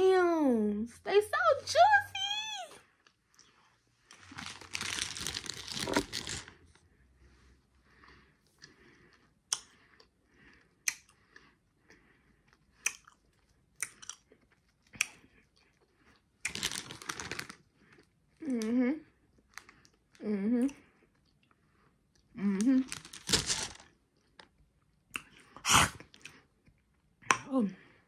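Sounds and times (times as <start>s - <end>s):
chewing crunchy sweets: 2.8s - 6.8s, 7.8s - 27.5s
snack bag rustling: 3.4s - 6.8s, 16.5s - 18.1s, 22.8s - 24.5s.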